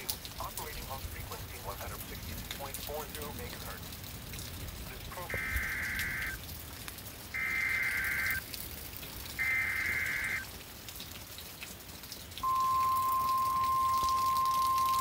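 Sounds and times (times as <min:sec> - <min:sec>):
high-pitched warning alarm tone: 0:05.3 - 0:06.4, 0:07.4 - 0:08.4, 0:09.4 - 0:10.4, 0:12.4 - 0:15.0
raspy digital data bursts: 0:07.4 - 0:08.4, 0:09.4 - 0:10.4.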